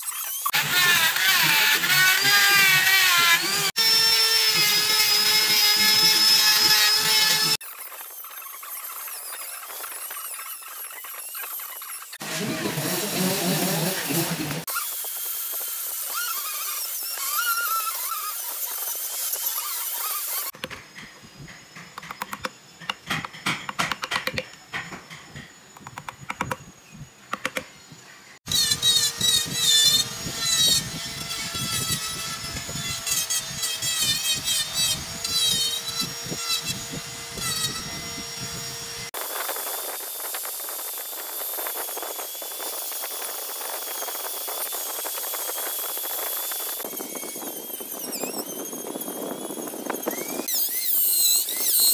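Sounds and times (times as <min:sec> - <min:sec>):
rotary tool whining into wood: 0:00.0 - 0:51.9
hand gouge scraping wood: 0:12.2 - 0:14.6.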